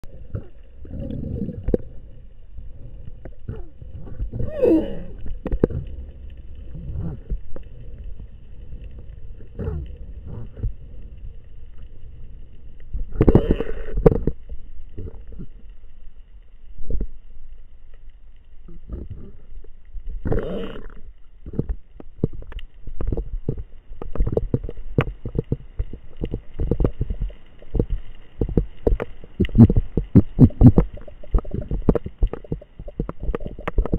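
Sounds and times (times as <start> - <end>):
underwater rumble of moving water: 0.0 - 33.9
underwater clicks: 20.2 - 33.9
gurgling bursts: 25.2 - 33.9.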